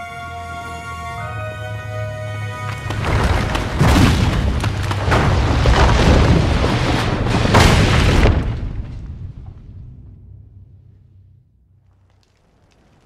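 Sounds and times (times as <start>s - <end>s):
heavy rock crashes: 2.9s - 10.7s
rumble of collapsing rock: 2.9s - 13.0s.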